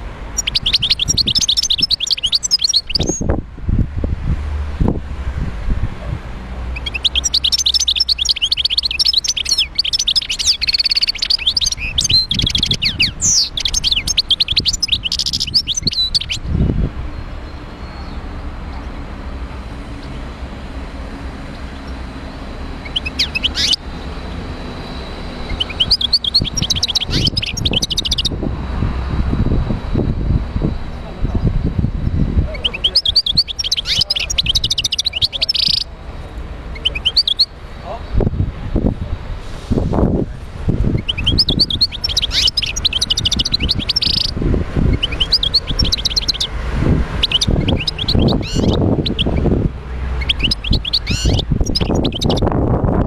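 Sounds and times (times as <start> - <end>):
goldfinch twittering song: 0.0 - 3.3, 6.7 - 19.1, 21.5 - 28.4, 32.6 - 38.2, 40.9 - 52.5.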